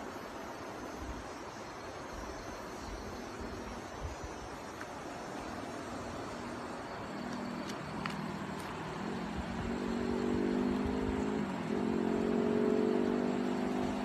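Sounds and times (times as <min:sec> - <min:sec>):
steady background hiss: 0:00.0 - 0:14.0.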